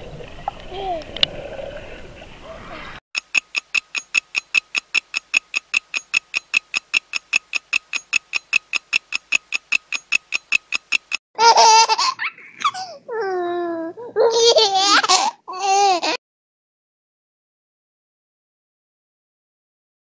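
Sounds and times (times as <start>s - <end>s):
fast even ticking: 3.2s - 11.2s
child laughing loudly: 11.4s - 16.2s.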